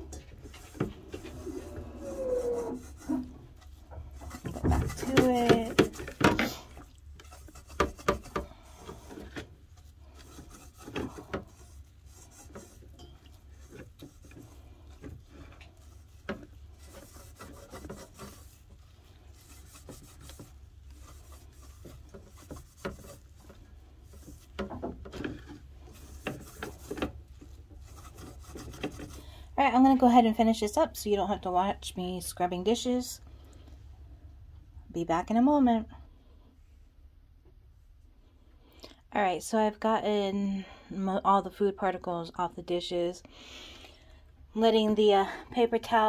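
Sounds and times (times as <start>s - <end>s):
scrubbing a steel saucepan: 0.0s - 29.4s.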